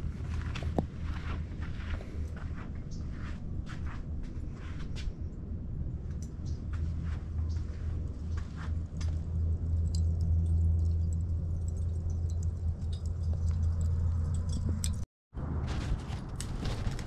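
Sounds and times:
low rumble: 0:00.0 - 0:17.0
charcoal crackling and popping: 0:08.0 - 0:15.0, 0:15.9 - 0:17.0.

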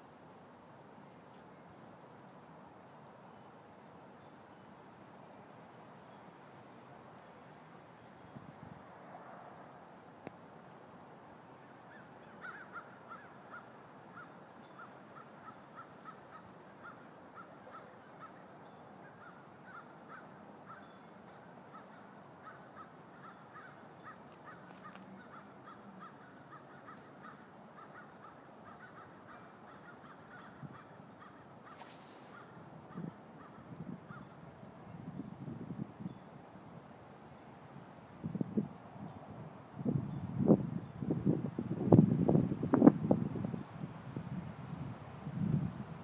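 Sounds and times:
faint bird calls: 0:11.6 - 0:34.4
brief hiss: 0:31.7 - 0:32.5.

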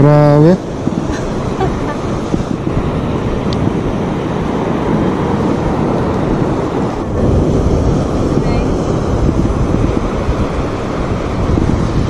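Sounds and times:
surf breaking on shore: 0:00.0 - 0:12.0
wind buffeting microphone: 0:00.0 - 0:12.0.

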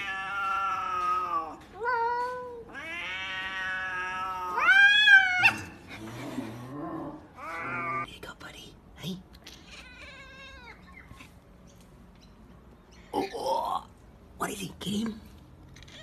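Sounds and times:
cats yowling: 0:00.0 - 0:05.9, 0:07.1 - 0:08.1, 0:09.6 - 0:11.2.

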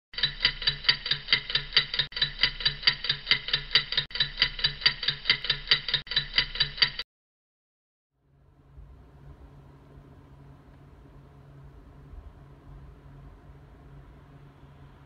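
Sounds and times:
clock ticking: 0:00.2 - 0:07.0.

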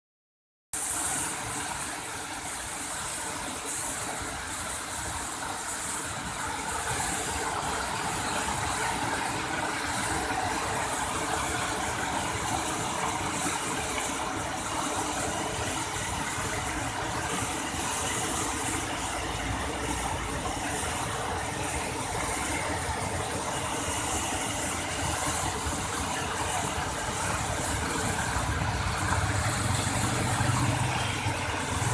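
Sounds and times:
waterfall crashing onto rocks: 0:00.8 - 0:31.9.

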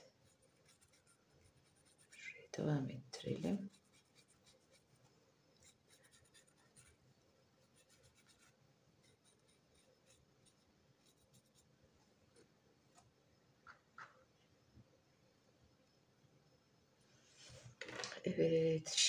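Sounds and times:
paintbrush scratchy strokes: 0:00.0 - 0:02.4, 0:03.3 - 0:11.8.

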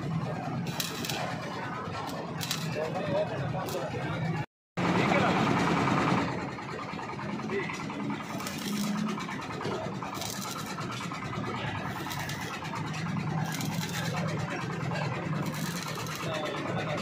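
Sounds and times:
welding arc crackling: 0:00.2 - 0:03.0, 0:03.6 - 0:04.0, 0:07.4 - 0:17.0.

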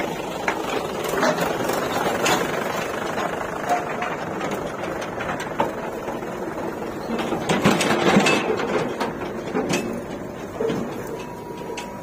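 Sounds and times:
backhoe loader working: 0:00.0 - 0:12.0.

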